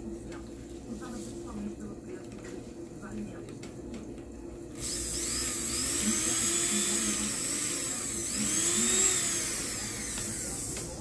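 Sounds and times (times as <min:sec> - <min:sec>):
hand blender motor whining: 0:04.8 - 0:11.0.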